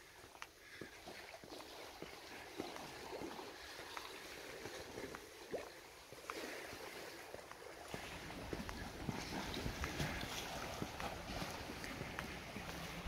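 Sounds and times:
waves splashing against rocks: 1.1 - 13.0
wind rumbling on microphone: 7.9 - 13.0.

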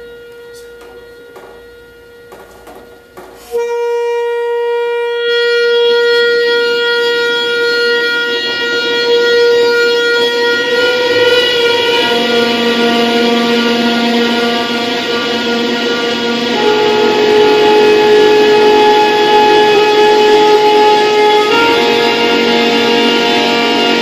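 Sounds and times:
sustained drone tone: 0.0 - 24.0
faint knocks: 0.6 - 3.6.

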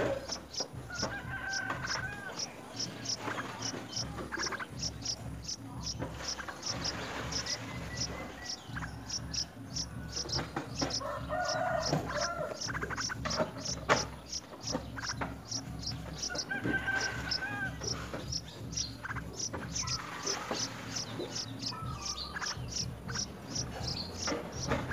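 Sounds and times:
chickens clucking: 0.0 - 24.9
insect chirping in pulses: 0.1 - 24.7
rooster crowing: 0.8 - 2.6, 7.6 - 12.8, 15.8 - 18.1.

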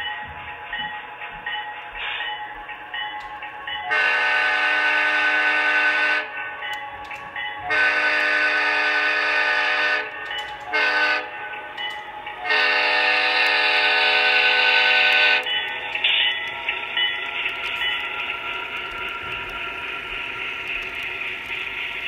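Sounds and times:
model locomotive horn blasts: 3.9 - 6.3, 7.7 - 11.3, 12.4 - 15.5.

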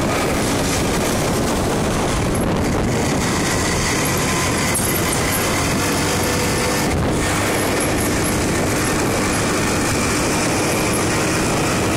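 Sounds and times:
scooter engine running: 0.0 - 11.9
wind rush on microphone: 0.0 - 11.9.

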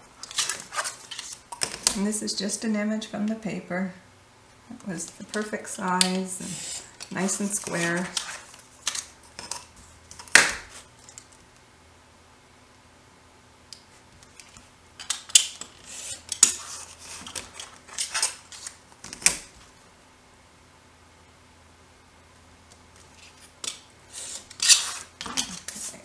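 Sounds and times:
paper rustling: 0.2 - 1.9, 6.4 - 10.0, 15.6 - 19.7.

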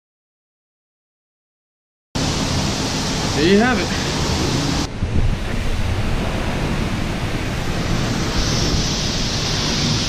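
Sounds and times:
wind buffeting a microphone: 2.2 - 10.0.

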